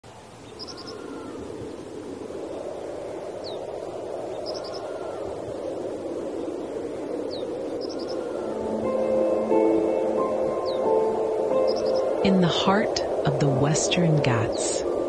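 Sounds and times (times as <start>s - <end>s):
steady rushing hiss: 0.0s - 15.0s
high bird chirps: 7.3s - 12.5s.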